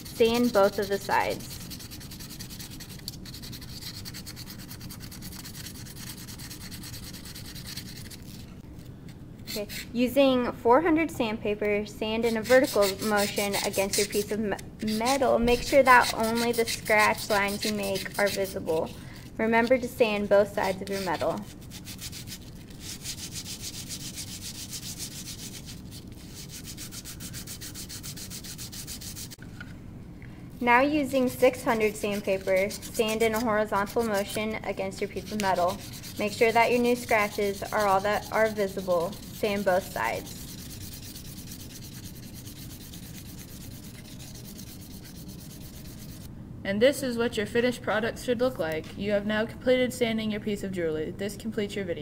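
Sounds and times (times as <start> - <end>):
sandpaper scratching on metal: 0.0 - 8.4, 12.2 - 19.0, 20.5 - 29.4, 31.2 - 46.3.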